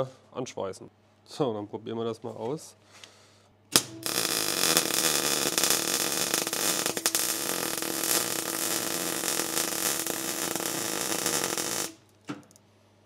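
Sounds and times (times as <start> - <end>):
faint electrical hum: 0.0 - 13.0
welding arc crackling hiss: 3.7 - 12.0
arc striking crack: 3.7 - 12.5.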